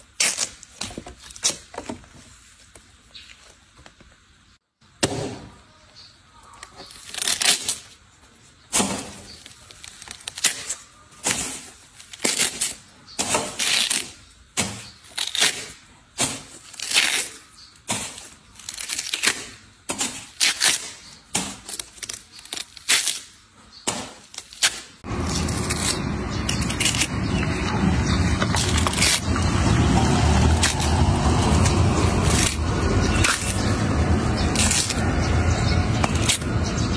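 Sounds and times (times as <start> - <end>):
watermelon rind cracking: 6.6 - 8.0, 18.1 - 23.4, 24.0 - 27.8, 28.4 - 36.6.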